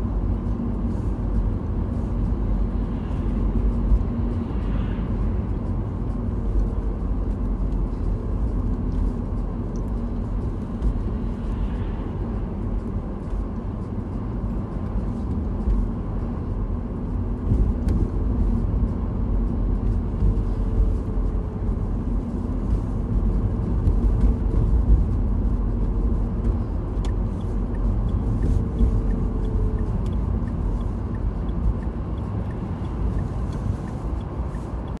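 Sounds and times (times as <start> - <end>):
car engine and road rumble: 0.0 - 35.0
light regular ticking: 21.7 - 35.0.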